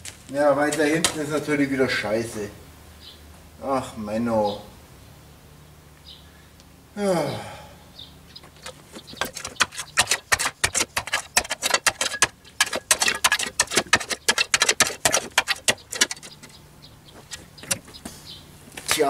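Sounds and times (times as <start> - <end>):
hand tool chipping at rubble: 8.6 - 16.6, 17.2 - 18.0.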